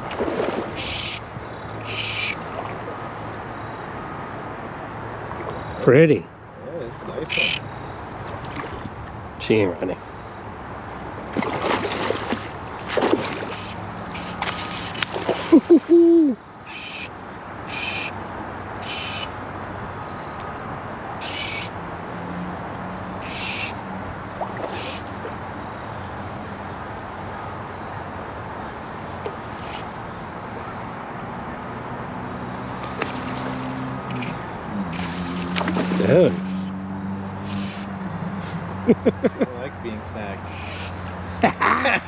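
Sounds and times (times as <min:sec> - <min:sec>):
river ambience: 0:00.0 - 0:42.0
fish splashing at the surface: 0:11.4 - 0:15.9, 0:32.9 - 0:33.9, 0:34.9 - 0:36.6
high rasping bursts: 0:13.5 - 0:15.5, 0:16.7 - 0:17.1, 0:17.7 - 0:18.1, 0:18.8 - 0:19.3, 0:37.4 - 0:37.9.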